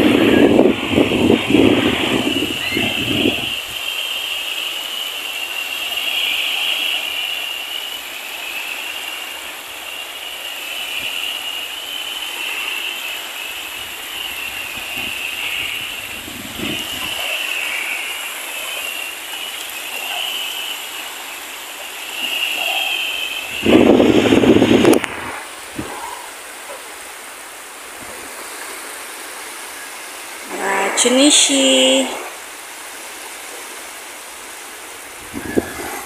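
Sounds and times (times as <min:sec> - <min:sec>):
high-pitched whine: 0:00.0 - 0:28.0, 0:34.9 - 0:36.0
waves washing on sand: 0:00.0 - 0:36.0.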